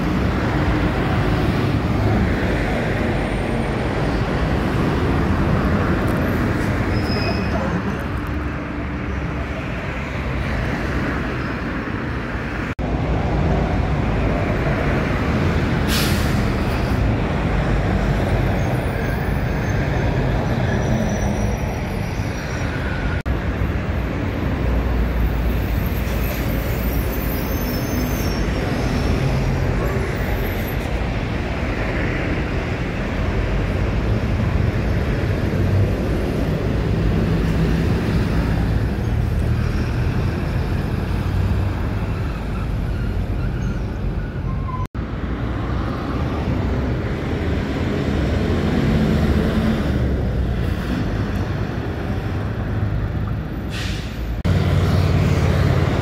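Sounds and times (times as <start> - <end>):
bus engine rumble: 0.0 - 56.0
traffic noise: 0.0 - 56.0
air brake hiss: 15.8 - 16.9, 53.7 - 54.3.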